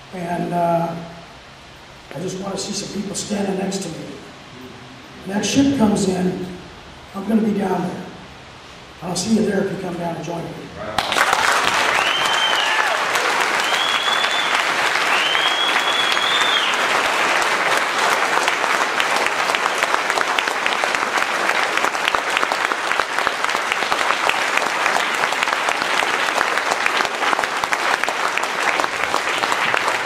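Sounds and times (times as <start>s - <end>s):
crowd applauding: 11.0s - 30.0s
high whistle: 11.9s - 16.9s.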